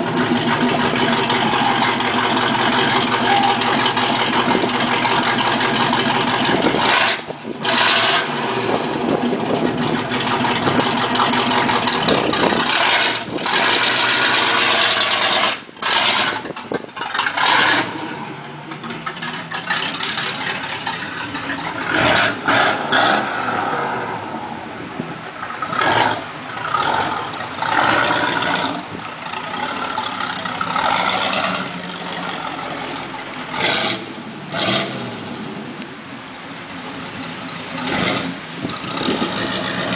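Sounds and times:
loud car engine revving: 0.0 - 39.9.

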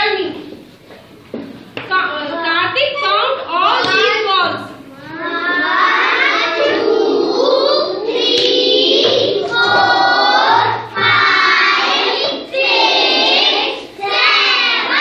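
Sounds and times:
children singing in chorus: 5.0 - 15.0.

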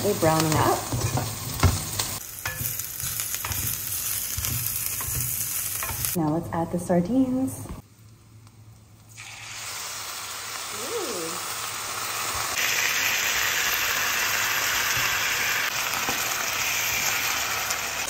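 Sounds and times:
fish sizzling in hot oil: 9.1 - 18.0.

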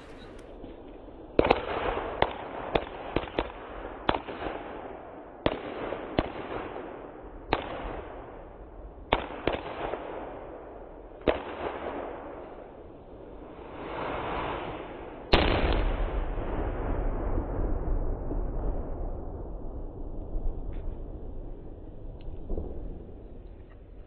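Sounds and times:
crackling hiss: 0.0 - 4.7, 13.2 - 16.5.

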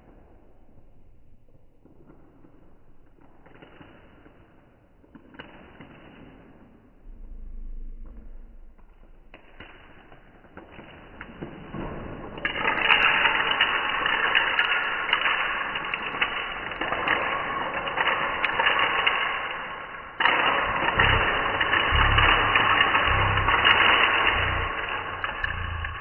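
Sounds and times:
low hum: 6.8 - 10.5, 13.1 - 26.0
dense crackling and rustling: 12.3 - 26.0.

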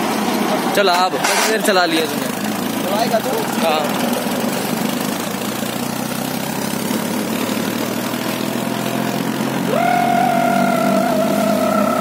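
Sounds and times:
tractor diesel engine idling: 0.0 - 12.0
loud high whine: 9.6 - 12.0.

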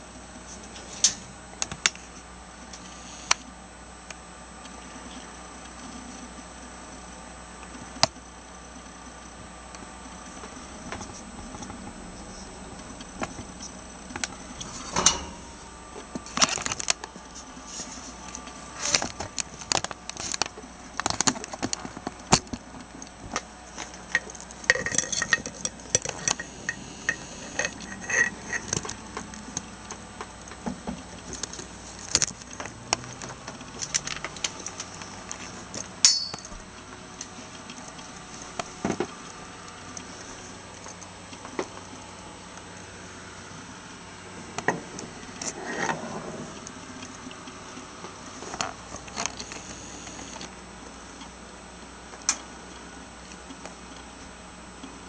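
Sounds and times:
metallic clicks and rattles: 24.1 - 29.4
ringing metal clink: 36.0 - 36.6.

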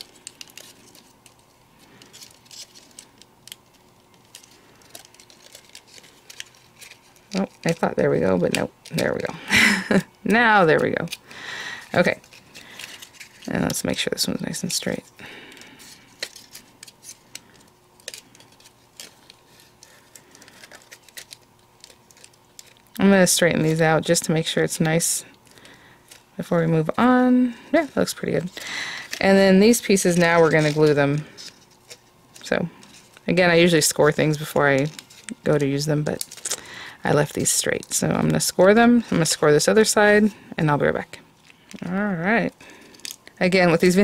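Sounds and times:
cardstock ticking and rustling: 0.0 - 9.4, 14.6 - 23.9
cardstock rustling: 0.0 - 40.0.

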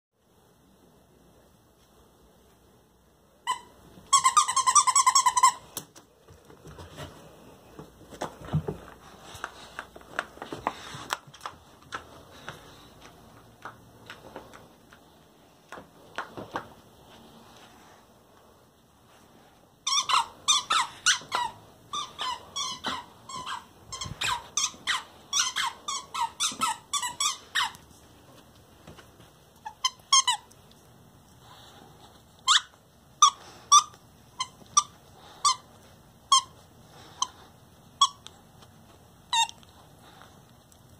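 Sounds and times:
dog toy squeaking: 3.4 - 5.7, 19.8 - 27.8, 29.6 - 30.5, 32.4 - 35.6, 36.3 - 36.6, 38.0 - 38.2.

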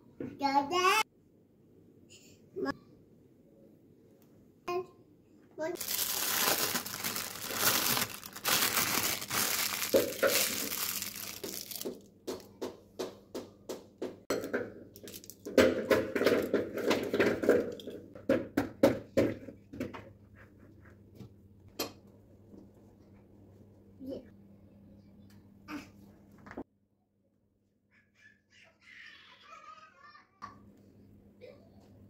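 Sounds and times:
plastic bag crinkling: 5.8 - 12.1, 15.1 - 15.5.

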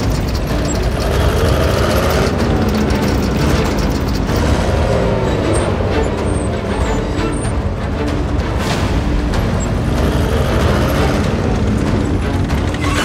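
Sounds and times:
engine whine: 0.0 - 13.0
tank engine rumble: 0.0 - 13.0.

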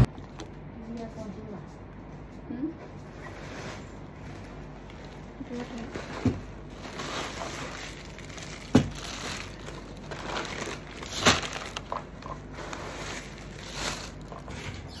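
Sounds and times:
plastic bags rustling: 3.2 - 14.6.

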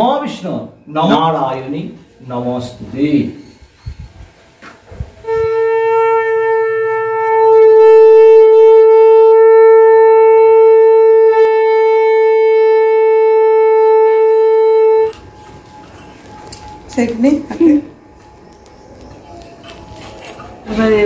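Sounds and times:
conch shell blown: 4.9 - 17.0.

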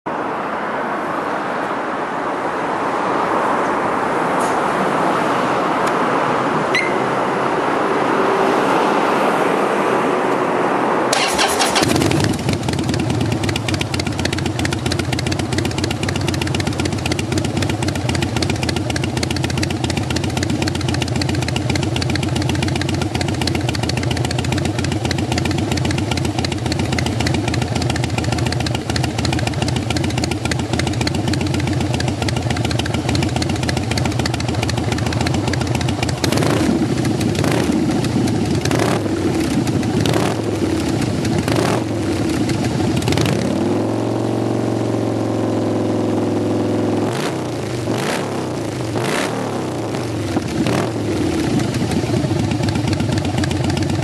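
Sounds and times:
motorcycle engine starting and idling: 11.1 - 54.0.

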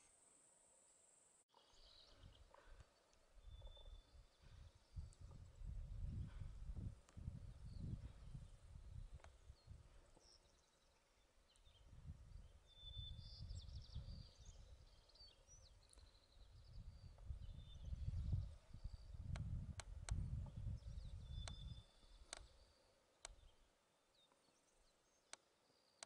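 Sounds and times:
songbird twittering trills: 1.5 - 5.4, 7.4 - 19.6, 20.2 - 26.0
wind gusting on microphone: 3.4 - 10.0, 11.7 - 14.9, 16.5 - 21.8.

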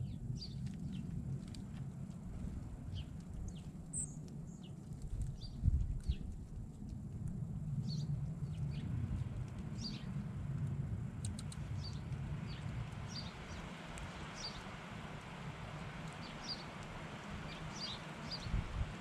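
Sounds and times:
steady low rumble: 0.0 - 19.0
songbirds chip calls: 7.8 - 10.3, 11.2 - 19.0.

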